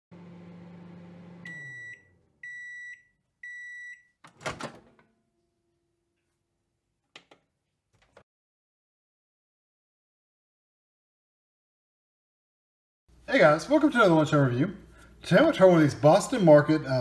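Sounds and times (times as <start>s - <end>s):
microwave oven humming: 0.1s - 3.8s.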